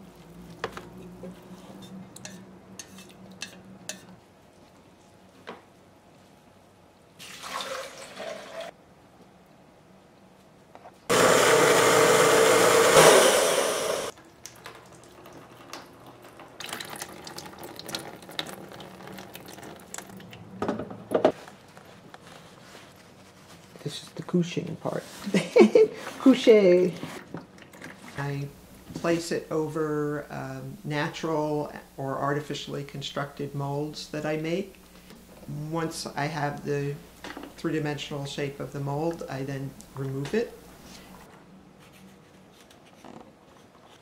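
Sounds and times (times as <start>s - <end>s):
blender running: 11.1s - 14.1s.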